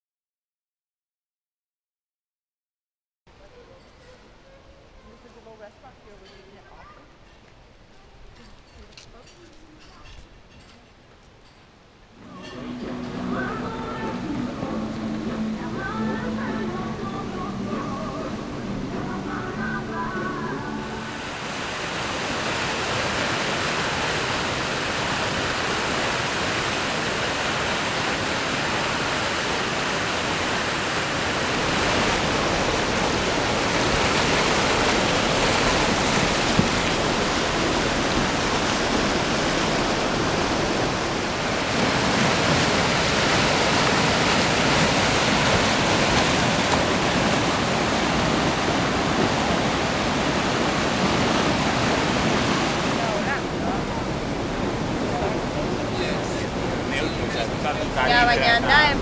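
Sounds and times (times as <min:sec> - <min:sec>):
whitewater rushing: 0:12.2 - 0:59.0.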